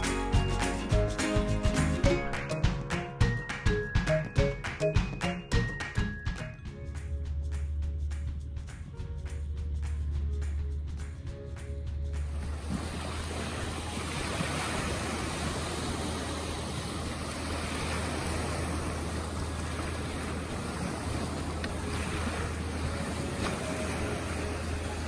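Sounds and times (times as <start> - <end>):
steady low rumble: 6.6 - 25.0
waves splashing against a dinghy: 12.3 - 25.0
waves washing up a shore: 12.3 - 25.0.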